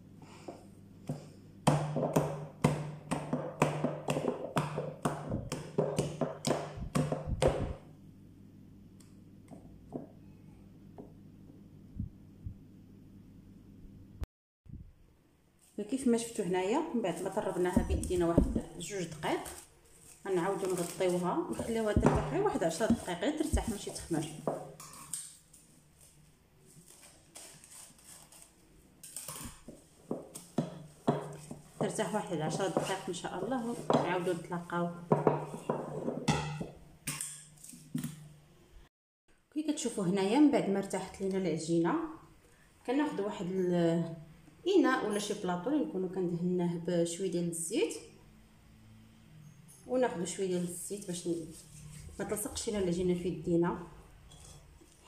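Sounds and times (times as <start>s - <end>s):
hand slapping sticky dough: 1.7s - 7.8s
plastic cling film crinkling: 17.1s - 30.5s.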